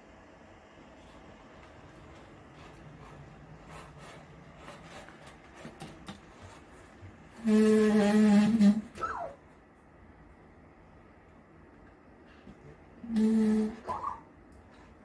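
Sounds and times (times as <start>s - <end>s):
robot moving over floor: 1.0s - 9.3s.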